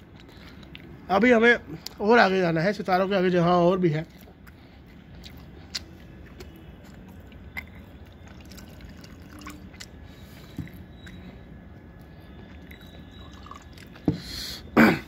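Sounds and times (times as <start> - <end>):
low background noise: 0.0 - 15.0
person eating with wet clicks: 4.1 - 11.4, 12.0 - 14.1.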